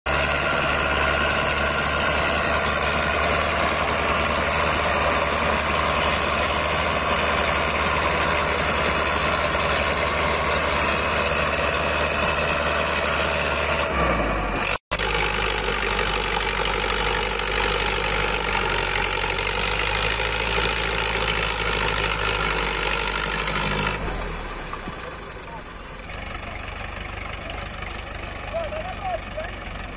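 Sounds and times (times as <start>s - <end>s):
tractor diesel engine under load: 0.1s - 29.9s.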